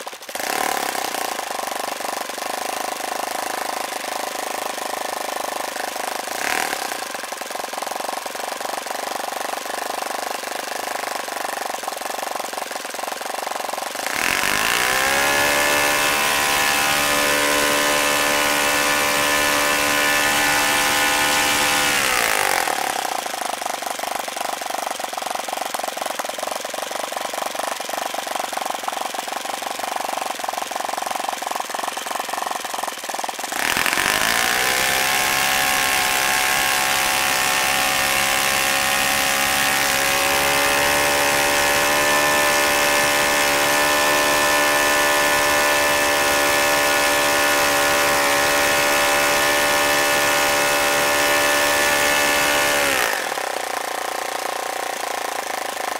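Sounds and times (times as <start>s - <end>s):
model engine running: 0.0s - 55.9s.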